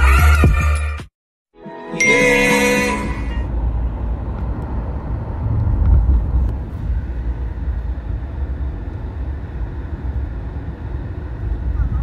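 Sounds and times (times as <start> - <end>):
car road and engine rumble: 3.0 - 12.0.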